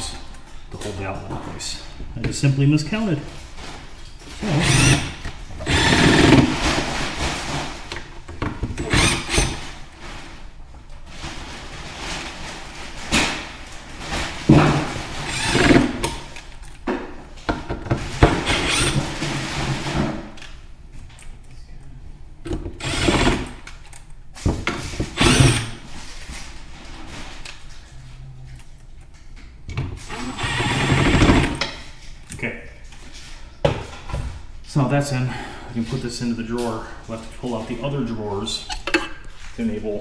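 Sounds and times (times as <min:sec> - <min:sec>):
cordless drill driving screws: 0:04.5 - 0:06.5, 0:08.8 - 0:09.6, 0:15.2 - 0:16.0, 0:18.4 - 0:19.0, 0:22.8 - 0:23.5, 0:25.1 - 0:25.8, 0:30.1 - 0:31.6.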